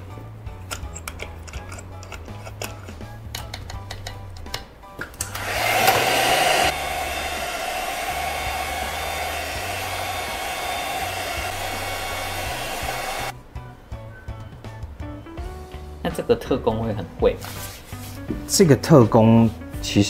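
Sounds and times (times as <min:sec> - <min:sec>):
hot-air gun blowing: 0:05.2 - 0:13.3.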